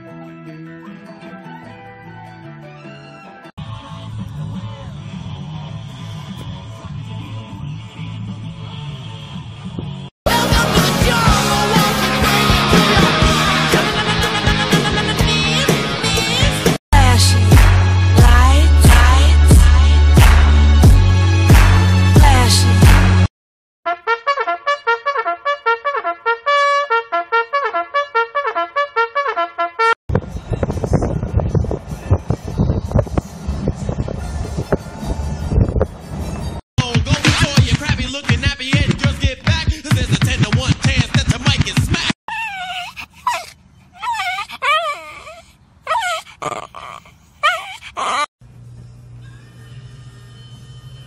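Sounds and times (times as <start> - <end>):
brass instrument playing fast notes: 23.9 - 30.0
small dog whining: 42.3 - 48.3.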